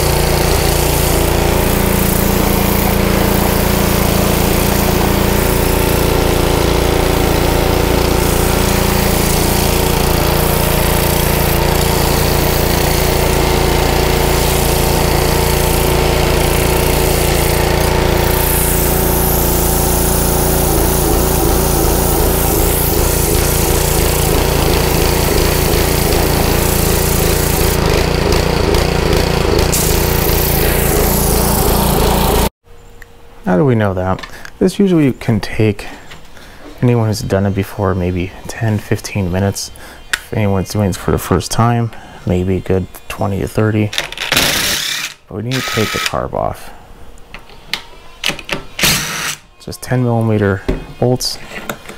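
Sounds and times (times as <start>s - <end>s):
small engine surging: 0.0s - 32.5s
water jet hissing: 0.0s - 32.5s.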